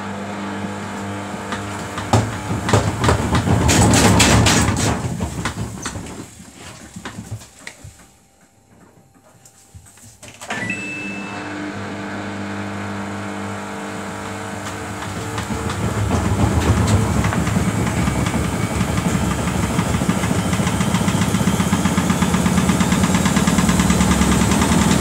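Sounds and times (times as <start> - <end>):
washing machine motor whine: 0.0 - 8.0, 10.4 - 25.0
washing machine drum knocking: 1.3 - 6.4, 14.2 - 25.0.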